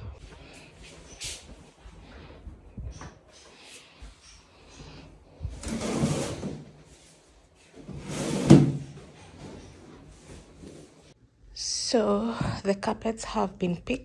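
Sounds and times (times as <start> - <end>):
carpet dragging on tiled floor: 4.8 - 11.2.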